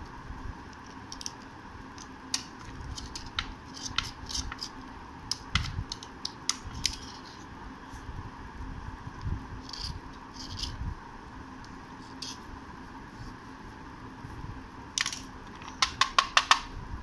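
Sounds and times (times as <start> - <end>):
metal blade scraping slate: 2.9 - 4.8, 9.6 - 10.8, 12.0 - 12.5.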